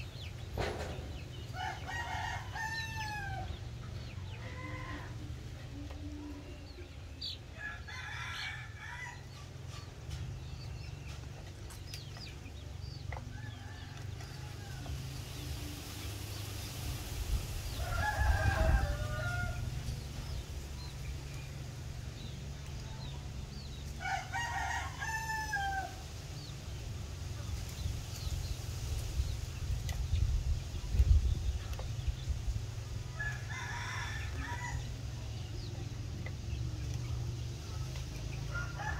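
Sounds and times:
chickens clucking: 0:00.0 - 0:38.9.

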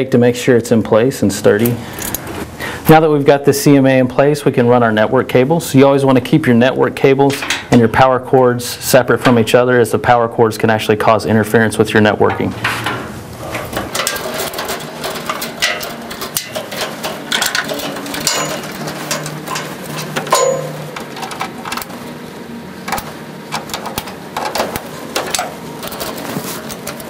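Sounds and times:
network cables being handled: 0:12.4 - 0:22.2, 0:22.8 - 0:27.0.

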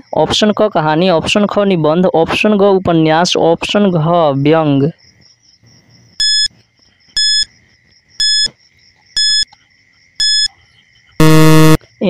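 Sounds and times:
short electronic beeps: 0:06.2 - 0:06.5, 0:07.2 - 0:07.5, 0:08.2 - 0:08.5, 0:09.2 - 0:09.5, 0:10.2 - 0:10.5, 0:11.2 - 0:11.8
faint high whine: 0:11.2 - 0:11.9.

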